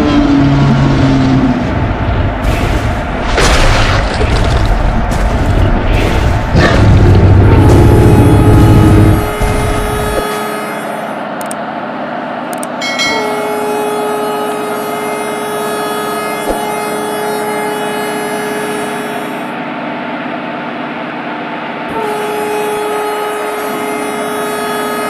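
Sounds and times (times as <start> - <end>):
train running noise: 0.0 - 25.0
train horn blasts: 7.1 - 11.4, 12.8 - 19.7, 21.8 - 25.0.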